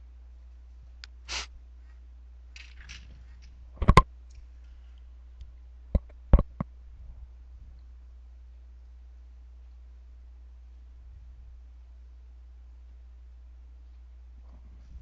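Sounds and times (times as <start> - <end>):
steady low hum: 0.0 - 15.0
short hiss: 1.2 - 1.6.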